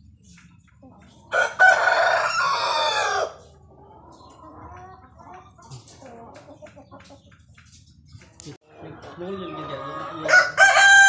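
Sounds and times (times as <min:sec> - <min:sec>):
chicken clucking: 0:00.0 - 0:11.0
rooster crowing: 0:01.3 - 0:03.4, 0:09.7 - 0:11.0.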